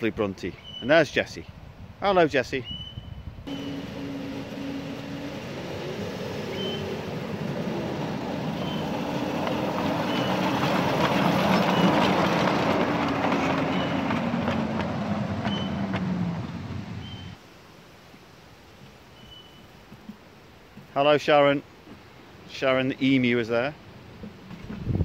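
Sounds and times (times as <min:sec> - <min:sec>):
train motor hum: 0:03.5 - 0:17.4
wheels on rails: 0:03.5 - 0:17.4.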